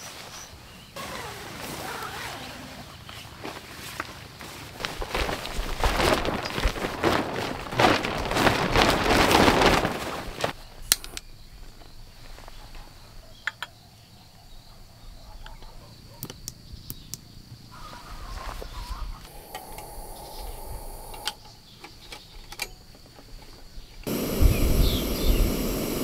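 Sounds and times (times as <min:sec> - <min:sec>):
faint high hiss: 0:18.8 - 0:21.7, 0:24.1 - 0:26.0.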